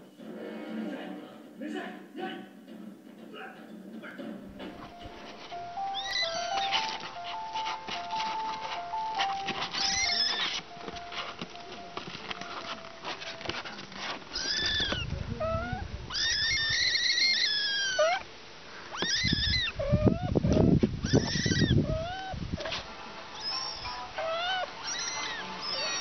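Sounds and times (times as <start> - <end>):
kittens mewing: 5.8 - 11.5, 12.6 - 26.0.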